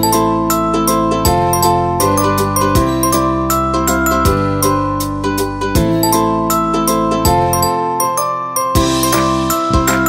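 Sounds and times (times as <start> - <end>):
light instrumental music with bells: 0.0 - 10.0.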